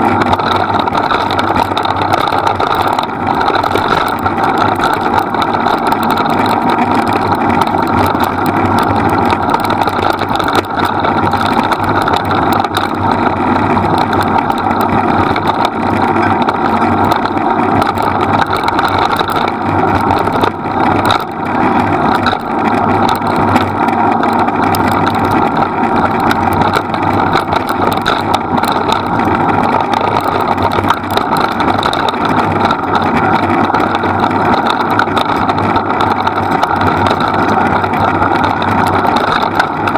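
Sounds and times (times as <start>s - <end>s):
wheels rolling over dirt trail: 0.0s - 39.9s.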